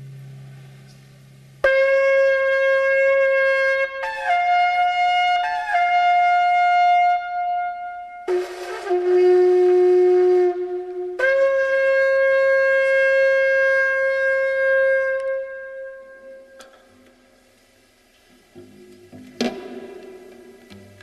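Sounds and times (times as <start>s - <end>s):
shofar blasts: 1.6s - 16.6s.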